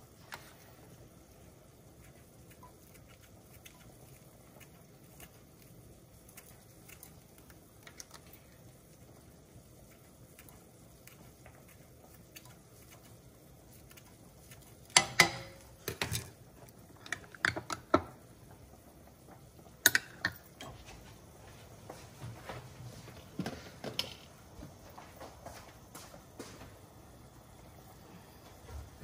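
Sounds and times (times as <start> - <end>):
kitchen items knocking and clattering: 14.9 - 18.2, 23.4 - 24.3.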